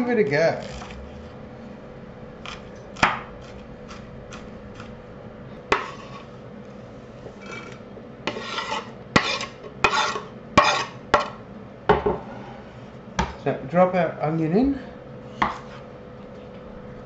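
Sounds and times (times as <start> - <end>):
knife scraping cutting board: 0.5 - 1.4, 2.4 - 5.0, 5.7 - 6.4, 7.3 - 11.0, 15.3 - 15.9.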